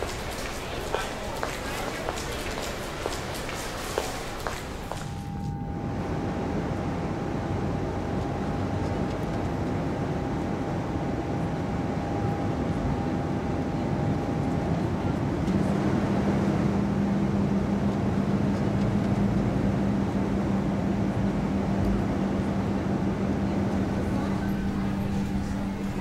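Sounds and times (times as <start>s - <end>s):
steady low hum: 0.0s - 14.8s, 15.6s - 26.0s
faint mid-pitched tone: 5.0s - 6.1s
vehicle running noise: 15.4s - 26.0s.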